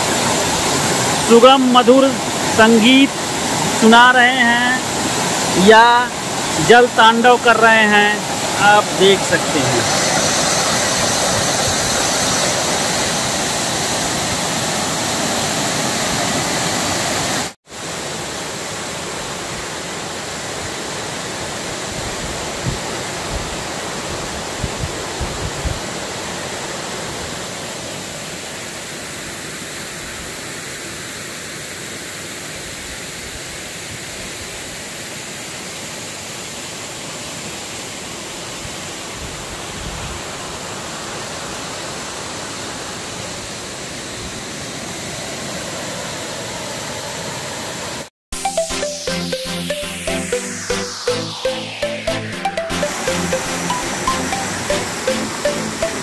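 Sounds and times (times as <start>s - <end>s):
waterfall crashing onto stones: 0.0s - 17.6s.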